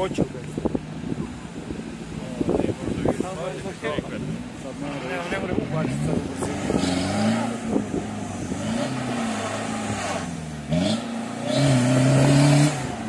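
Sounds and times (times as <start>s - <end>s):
off-road car engine revving: 0.0s - 13.0s.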